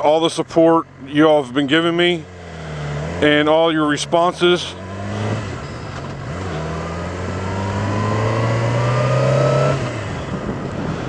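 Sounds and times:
motorcycle engine accelerating: 0:02.1 - 0:11.0
wind rush from riding: 0:08.7 - 0:11.0.

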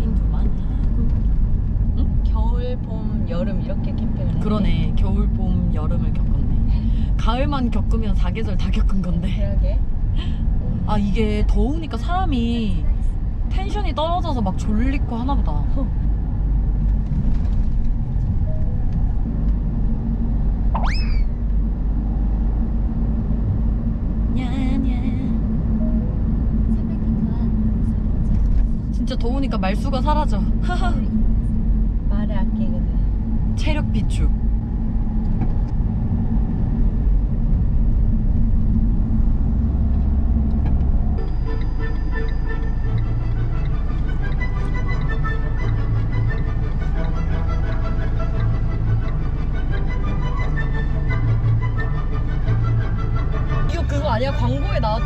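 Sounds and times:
car cabin road and engine rumble: 0:00.0 - 0:55.0
light background music: 0:10.7 - 0:36.8, 0:38.9 - 0:55.0
rising whistle sound effect: 0:20.7 - 0:21.4
short warbling sound: 0:20.7 - 0:21.4
music: 0:40.7 - 0:55.0.

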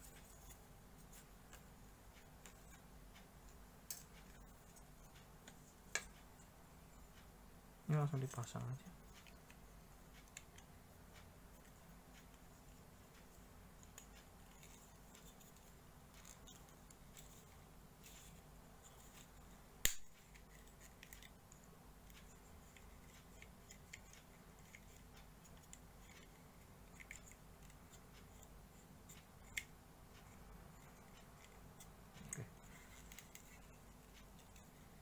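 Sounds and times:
faint handling ticks: 0:07.9 - 0:35.0
sharp plastic snap: 0:19.8 - 0:20.2.

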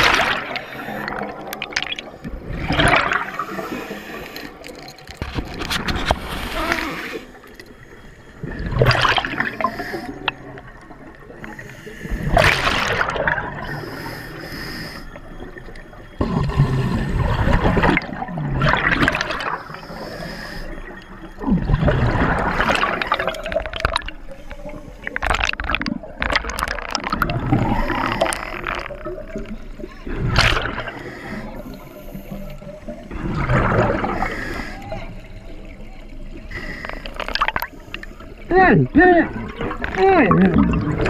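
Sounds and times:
exhaled bubbles gurgling underwater: 0:00.0 - 0:41.0
regulator hiss: 0:13.6 - 0:15.4.

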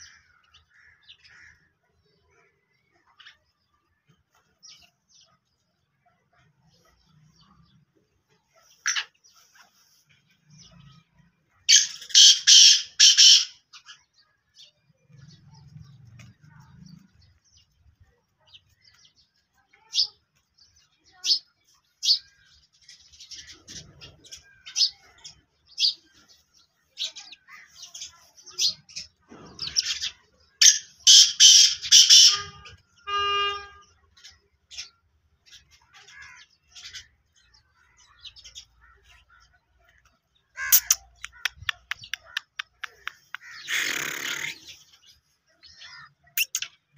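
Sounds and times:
sparrows chirping: 0:00.0 - 0:46.9
bird harsh grating call: 0:11.7 - 0:13.9, 0:28.6 - 0:34.9, 0:40.5 - 0:46.8.

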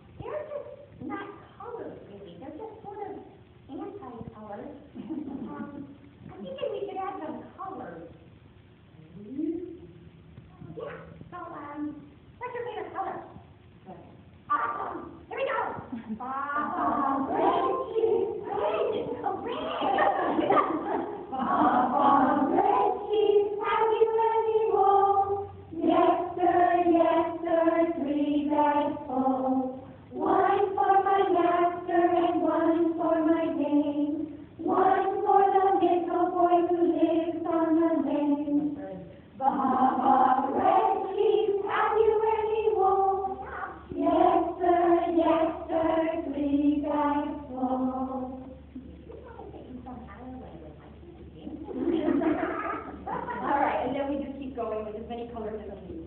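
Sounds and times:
group of voices singing: 0:16.6 - 0:48.7.

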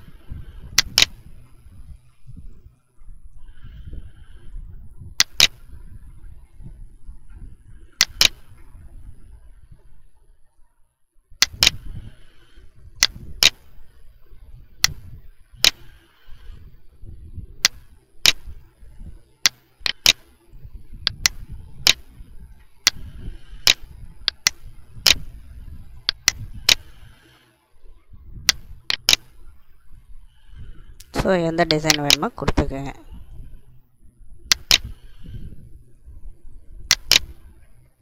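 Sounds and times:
low background rumble: 0:00.0 - 0:38.0
mouse button clicks: 0:05.2 - 0:05.6, 0:08.0 - 0:08.4, 0:11.4 - 0:11.8, 0:19.4 - 0:20.2, 0:23.6 - 0:25.2, 0:26.1 - 0:26.9, 0:28.5 - 0:29.3, 0:31.1 - 0:32.7, 0:34.5 - 0:35.0, 0:36.9 - 0:37.4.

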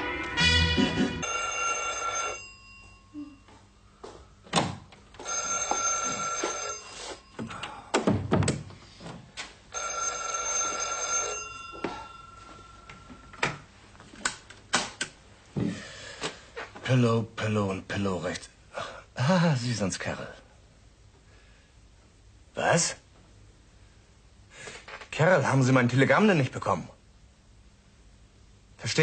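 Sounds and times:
telephone bell ringing: 0:00.4 - 0:03.5, 0:05.2 - 0:07.6, 0:09.7 - 0:13.4.

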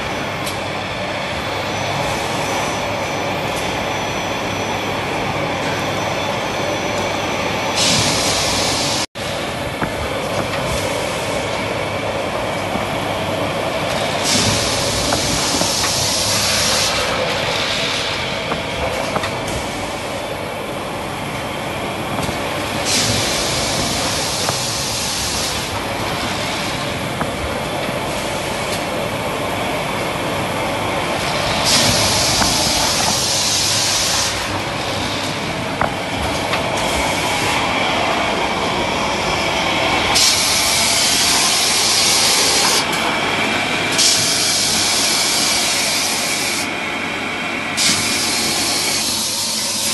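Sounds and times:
packing machine conveyors and rollers: 0:00.0 - 0:49.9
machine hiss: 0:07.8 - 0:43.0, 0:43.9 - 0:46.8, 0:47.8 - 0:49.9.

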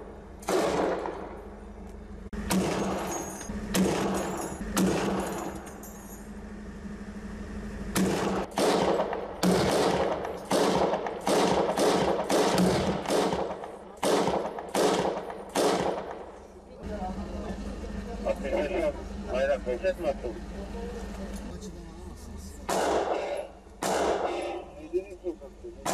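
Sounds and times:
gunshots with long echo: 0:00.0 - 0:01.6, 0:02.4 - 0:05.5, 0:08.0 - 0:16.4, 0:22.7 - 0:24.7.

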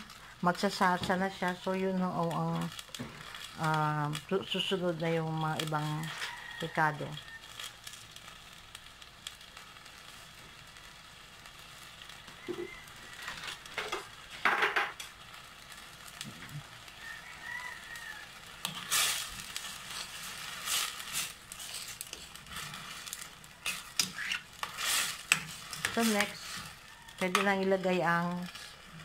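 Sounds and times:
sauce simmering with low sizzle: 0:00.0 - 0:29.0
ladle scraping and knocking pan: 0:18.6 - 0:27.5.

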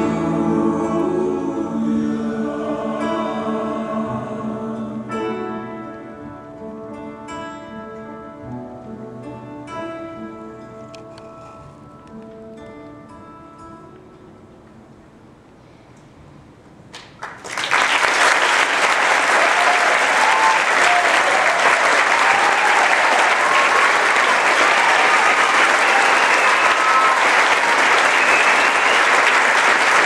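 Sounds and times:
audience applause: 0:17.2 - 0:30.0
people cheering: 0:17.5 - 0:30.0.

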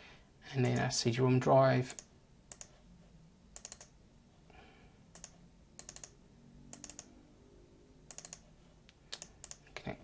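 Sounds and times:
mouse and keyboard clicks: 0:01.9 - 0:02.8, 0:03.6 - 0:03.9, 0:05.1 - 0:07.1, 0:08.1 - 0:08.5, 0:09.1 - 0:09.6.

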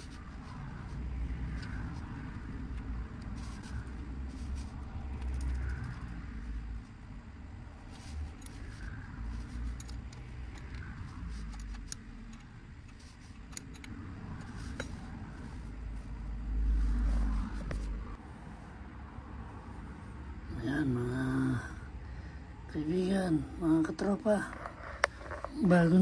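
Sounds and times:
steady low rumble: 0:00.0 - 0:26.0
metallic clicks and rattles of brake: 0:01.5 - 0:06.2, 0:08.2 - 0:15.1.

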